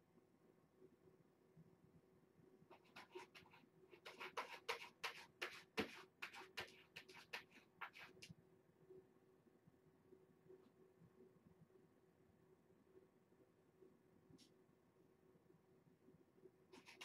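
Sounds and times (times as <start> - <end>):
cat scratching litter: 2.7 - 8.3, 16.7 - 17.0.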